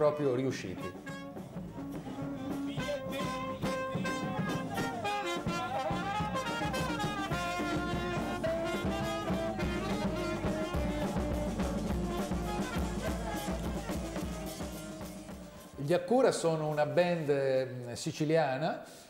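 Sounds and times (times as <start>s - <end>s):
trumpet: 0.0s - 15.8s
steady drum beat: 0.0s - 16.0s
saxophone: 0.6s - 15.8s.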